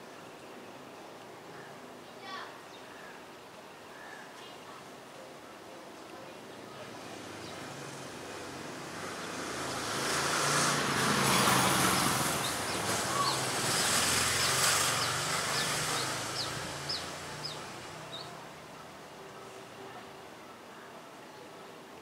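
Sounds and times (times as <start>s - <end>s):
vehicle passing by: 6.9s - 18.5s
small bird chirping: 11.9s - 18.3s.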